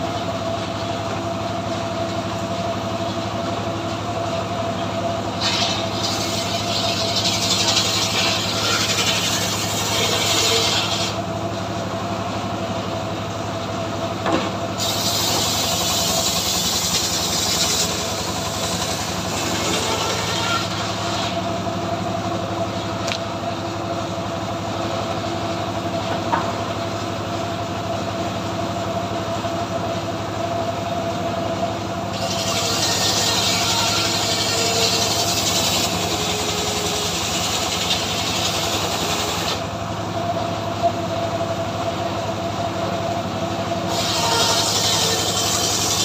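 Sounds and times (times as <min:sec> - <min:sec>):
engine running: 0:00.0 - 0:46.0
saw cutting through log: 0:05.4 - 0:11.3, 0:14.8 - 0:21.6, 0:32.1 - 0:39.7, 0:43.8 - 0:46.0.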